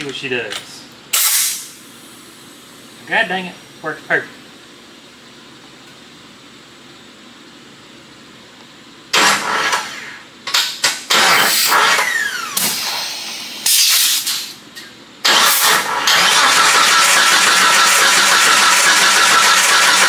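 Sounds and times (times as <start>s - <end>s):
compressed air hissing from hose: 12.6s - 14.6s.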